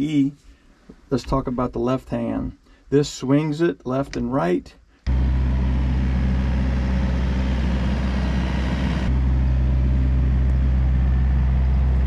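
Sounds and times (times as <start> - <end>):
excavator diesel engine running: 5.1 - 12.0
hydraulics working: 5.1 - 12.0.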